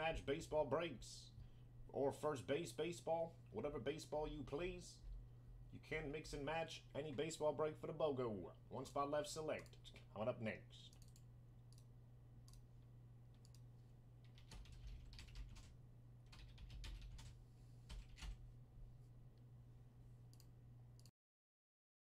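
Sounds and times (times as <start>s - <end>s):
steady low hum: 0.0s - 21.1s
keyboard typing clicks: 10.9s - 12.6s, 13.4s - 15.7s.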